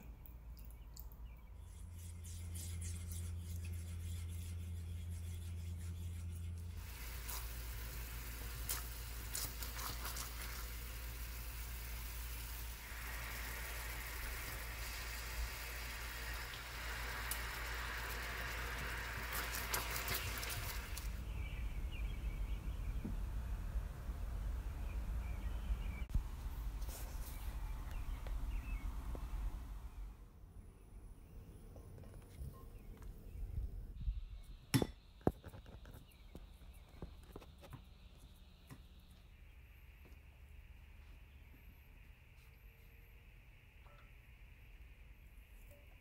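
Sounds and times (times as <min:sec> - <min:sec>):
low steady hum: 0:00.0 - 0:46.0
syrup bubbling and sizzling: 0:06.7 - 0:21.5.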